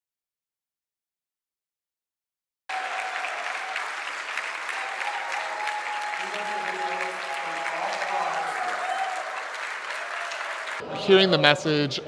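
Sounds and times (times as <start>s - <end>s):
people applauding: 2.7s - 10.9s.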